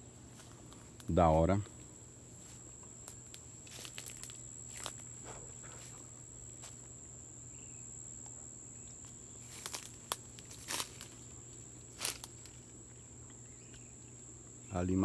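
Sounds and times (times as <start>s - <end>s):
high-pitched insect trill: 0.0s - 15.0s
footsteps crunching dry leaves: 0.2s - 6.9s, 9.0s - 12.8s.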